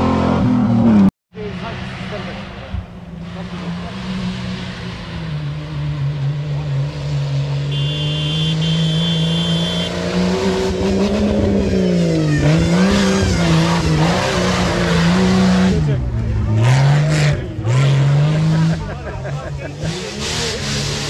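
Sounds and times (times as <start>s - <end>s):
engine revving hard: 6.5s - 19.0s.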